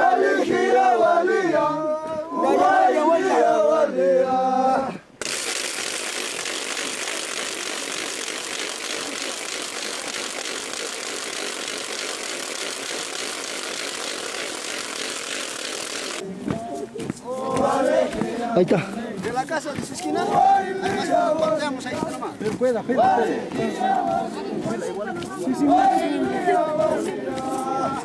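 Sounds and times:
men singing together: 0:00.0 - 0:05.0, 0:17.2 - 0:28.0.

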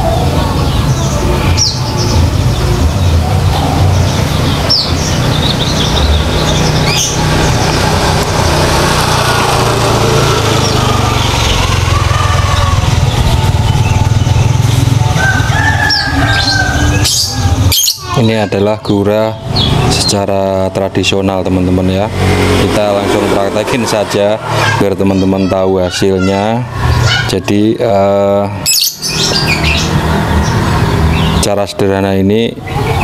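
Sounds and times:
bird chirps: 0:00.0 - 0:08.0, 0:15.6 - 0:20.2, 0:28.6 - 0:31.5.

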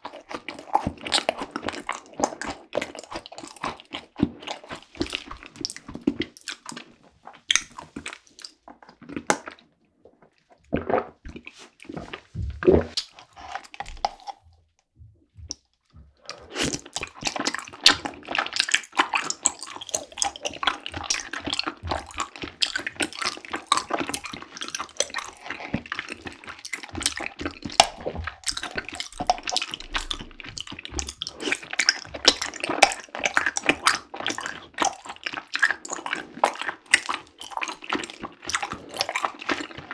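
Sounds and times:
slurping through a straw: 0:00.0 - 0:14.4, 0:16.2 - 0:39.9
gulping and swallowing: 0:00.0 - 0:14.5, 0:15.3 - 0:39.9
chewing tapioca pearls: 0:00.0 - 0:39.9
wet mouth clicks: 0:12.6 - 0:14.4, 0:16.2 - 0:39.8.

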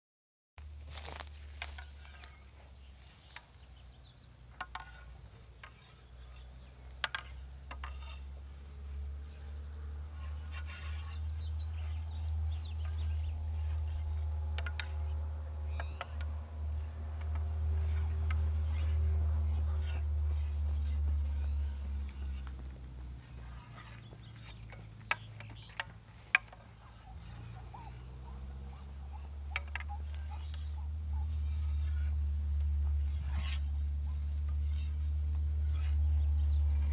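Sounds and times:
steady low hum: 0:00.6 - 0:36.9
wooden swords clacking: 0:04.4 - 0:08.8, 0:12.0 - 0:31.1.

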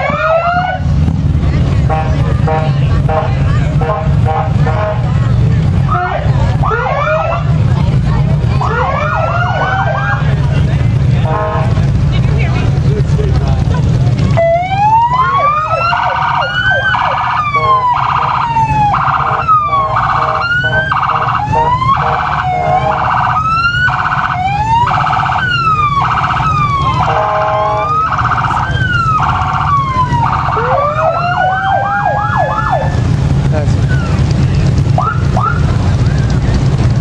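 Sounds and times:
police siren wailing and yelping: 0:00.0 - 0:00.9, 0:05.9 - 0:07.6, 0:08.6 - 0:10.4, 0:14.3 - 0:33.1, 0:34.9 - 0:35.8.

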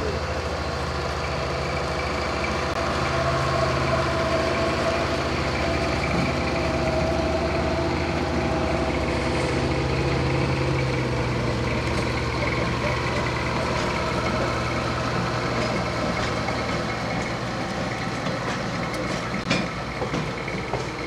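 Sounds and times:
diesel locomotive engine running: 0:00.0 - 0:21.0.

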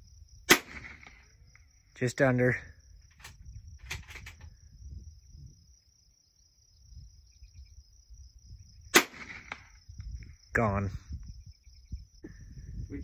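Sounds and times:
high insect trill: 0:00.0 - 0:13.0
rifle shot: 0:00.5 - 0:01.3, 0:08.9 - 0:09.8.

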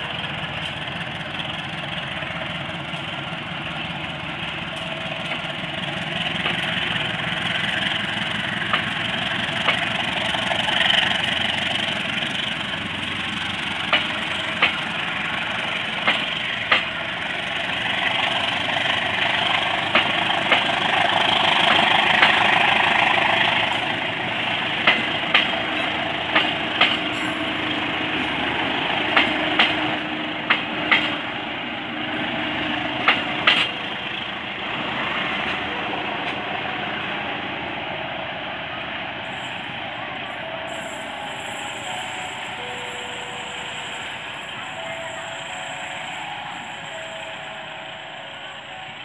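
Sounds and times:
wheels clacking over rail joints: 0:00.0 - 0:36.6
train wheels rumbling on rail: 0:00.0 - 0:49.0.

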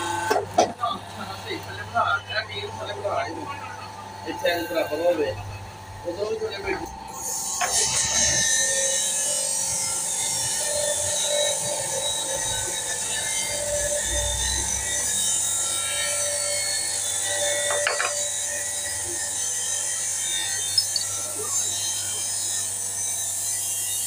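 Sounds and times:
hydraulic pump whining: 0:00.0 - 0:01.2, 0:07.4 - 0:23.4.

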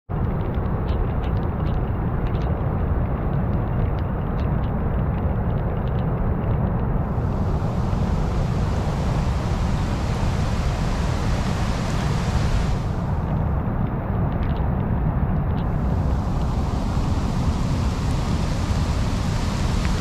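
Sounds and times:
wind buffeting microphone: 0:00.1 - 0:20.0
faint ticks: 0:00.2 - 0:06.9
river rushing: 0:07.0 - 0:13.3, 0:15.6 - 0:20.0
bright hiss: 0:07.1 - 0:13.2, 0:15.6 - 0:20.0.

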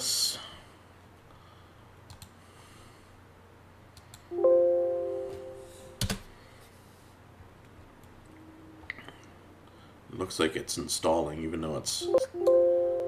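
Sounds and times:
electronic chime: 0:04.3 - 0:05.7.

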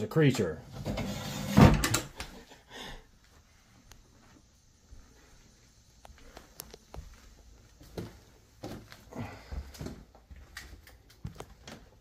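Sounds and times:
footsteps on loose tiles and debris: 0:06.1 - 0:12.0.

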